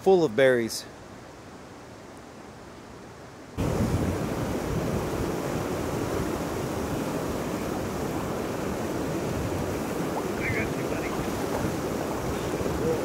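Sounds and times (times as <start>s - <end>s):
river water rushing: 3.6s - 13.0s.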